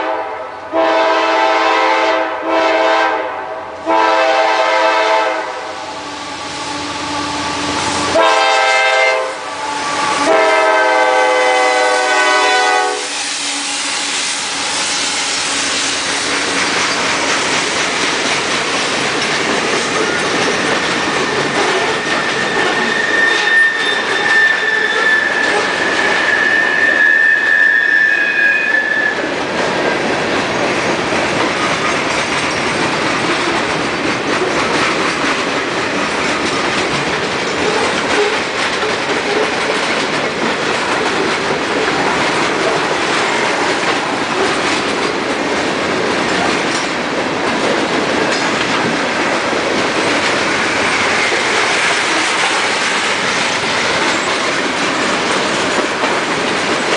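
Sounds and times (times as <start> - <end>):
train wheels rumbling and clattering: 0.0 - 27.8, 28.7 - 56.9
high wheel squeal: 21.8 - 29.3.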